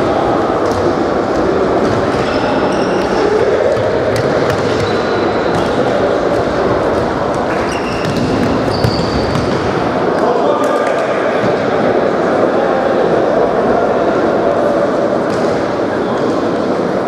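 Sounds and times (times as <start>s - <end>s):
ball bouncing on court: 0.6s - 9.8s
shoes squeaking on floor: 2.2s - 3.3s, 7.5s - 9.5s.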